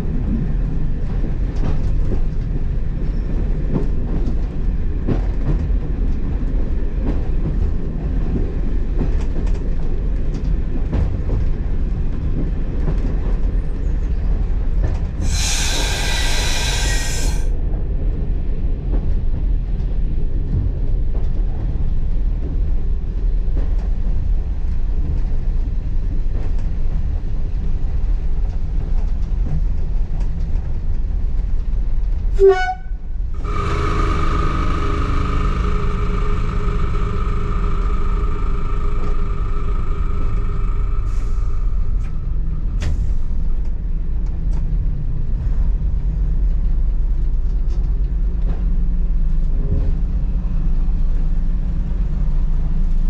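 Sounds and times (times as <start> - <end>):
diesel train engine rumble: 0.0 - 53.0
shrill sound: 33.4 - 42.6.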